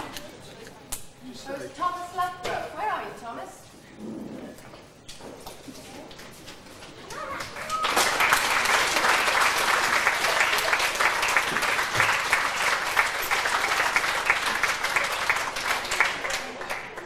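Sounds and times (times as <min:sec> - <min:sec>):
audience clapping: 0:06.8 - 0:17.0.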